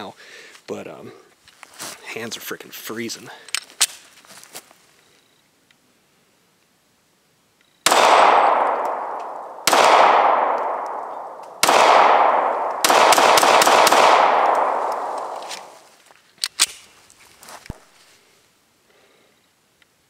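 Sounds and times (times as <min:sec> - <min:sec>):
pistol shots echoing: 0:07.8 - 0:15.8.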